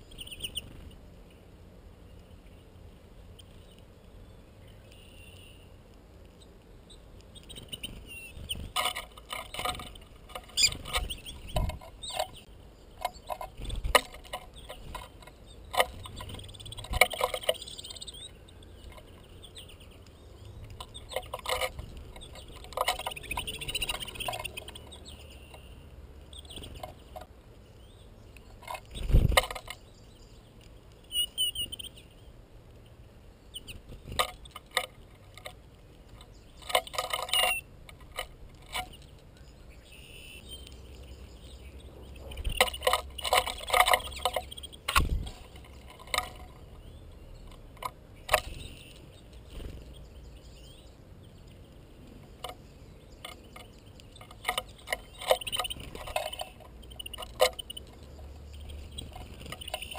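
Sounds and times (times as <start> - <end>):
birds pecking at feeder: 2.0 - 59.9
finch twittering: 6.9 - 27.2, 27.8 - 32.3, 38.8 - 59.9.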